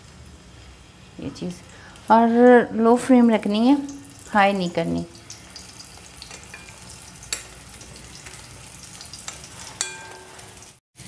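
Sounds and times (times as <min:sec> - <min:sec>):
food sizzling in oil: 0:03.2 - 0:11.0.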